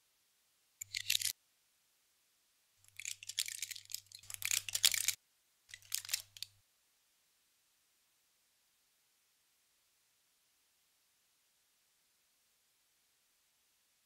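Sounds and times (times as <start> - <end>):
foil blister packs crinkling: 2.9 - 6.4.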